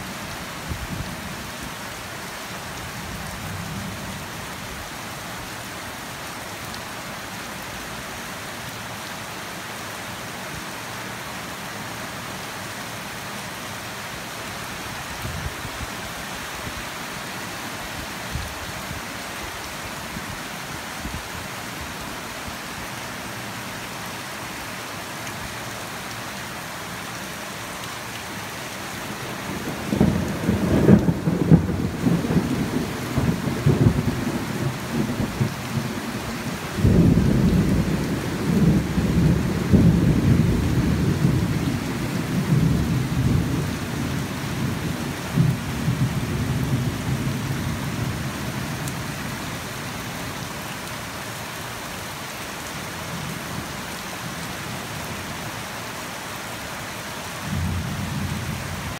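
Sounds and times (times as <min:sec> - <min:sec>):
heavy rain falling: 0:00.0 - 0:58.9
thunder rumbling: 0:29.2 - 0:48.3.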